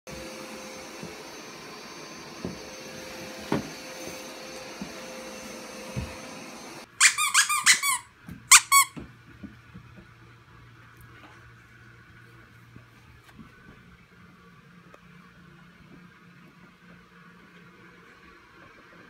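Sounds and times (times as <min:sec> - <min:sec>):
squeaky toy squeaking: 0:06.9 - 0:09.0.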